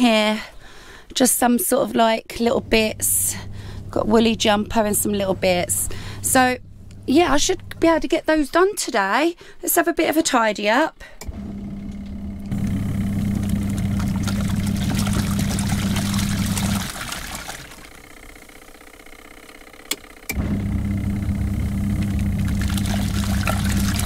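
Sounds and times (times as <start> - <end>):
washing machine motor humming: 1.5 - 8.7, 11.2 - 24.0
water and clothes sloshing: 13.2 - 18.0, 22.4 - 24.0.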